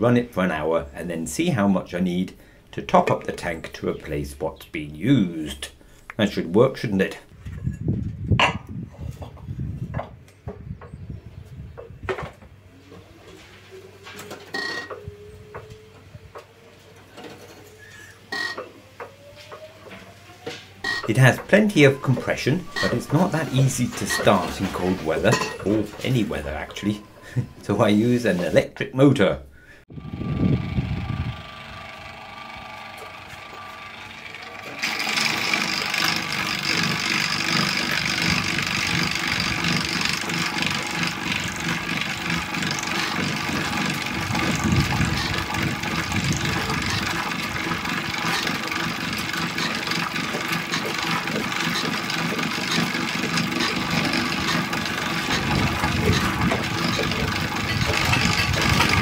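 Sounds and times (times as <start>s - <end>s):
electric starter motor spinning: 19.2s - 27.4s, 29.9s - 59.0s.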